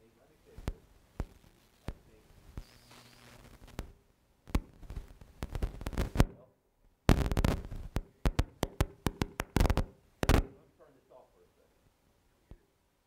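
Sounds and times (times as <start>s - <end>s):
microphone crackling and popping: 0.5s - 6.4s, 7.1s - 10.6s.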